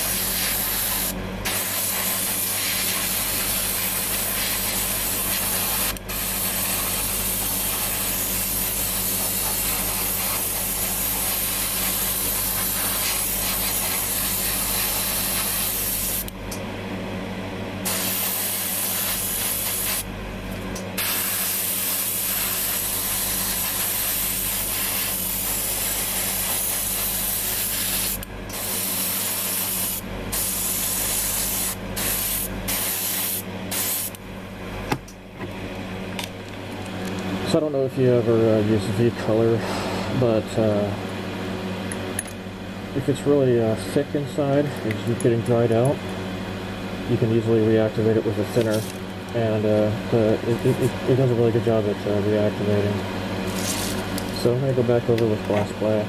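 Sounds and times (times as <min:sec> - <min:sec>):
airbrush spraying hiss: 0:00.0 - 0:16.3, 0:17.8 - 0:20.1, 0:21.0 - 0:34.2.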